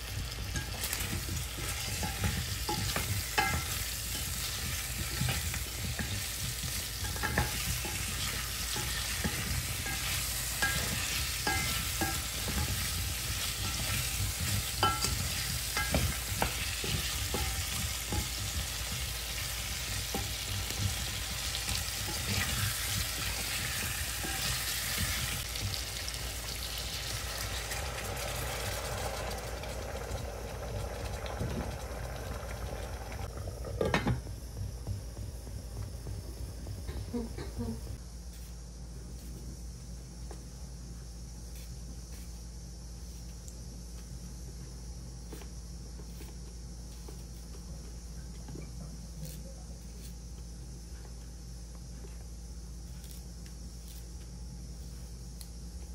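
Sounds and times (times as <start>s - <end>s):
food sizzling in hot oil: 0.0s - 38.0s
liquid bubbling in pot: 0.0s - 38.0s.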